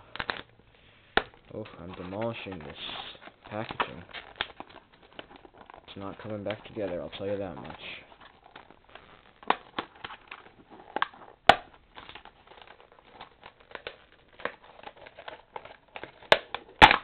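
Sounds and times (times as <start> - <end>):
plastic packaging crinkling and snapping: 0.0 - 17.0.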